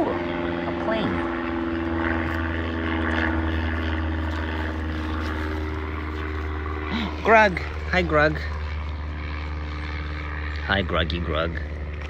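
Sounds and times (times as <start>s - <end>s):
airplane engine droning: 0.0s - 12.0s.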